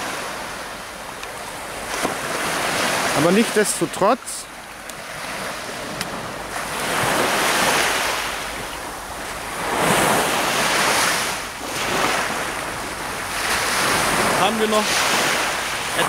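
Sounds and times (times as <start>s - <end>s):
surf washing onto sandy beach: 0.0s - 16.0s.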